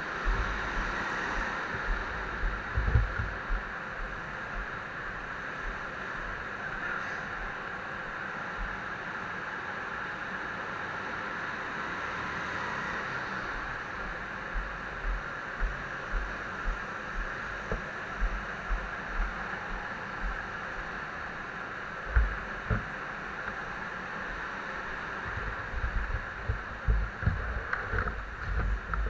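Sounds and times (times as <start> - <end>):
indoor hall hum: 0.0 - 29.0
soft low thuds of footsteps: 0.2 - 6.4, 13.6 - 29.0.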